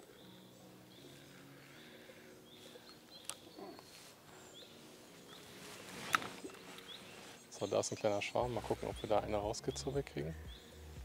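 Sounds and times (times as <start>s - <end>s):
faint bird chirps: 0.0s - 11.0s.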